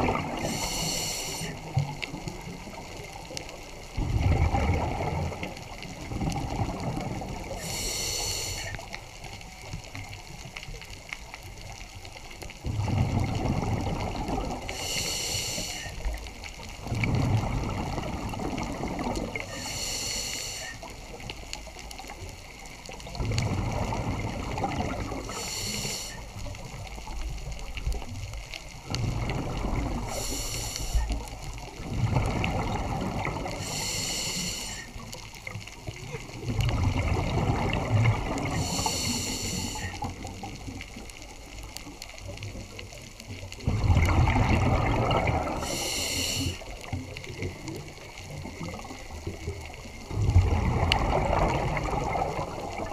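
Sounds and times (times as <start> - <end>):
bubbling exhale: 0.0 - 1.8, 4.0 - 8.8, 12.7 - 16.1, 23.2 - 26.3, 29.0 - 35.1, 36.4 - 40.5, 43.6 - 47.5, 50.1 - 52.9
hissing regulator inhale: 0.3 - 1.8, 7.4 - 8.8, 14.7 - 16.1, 19.4 - 20.9, 25.2 - 26.3, 30.0 - 31.2, 33.5 - 35.0, 38.6 - 40.1, 45.5 - 46.7.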